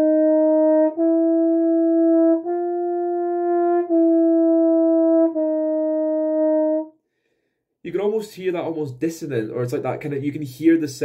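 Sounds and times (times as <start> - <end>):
tenor horn playing slow notes: 0.0 - 6.9.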